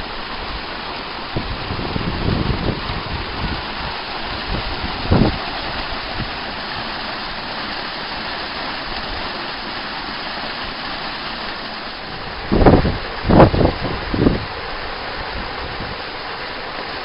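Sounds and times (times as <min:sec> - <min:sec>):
water rushing over weir: 0:00.0 - 0:17.0
wind thump on microphone: 0:01.3 - 0:06.9, 0:12.2 - 0:14.6.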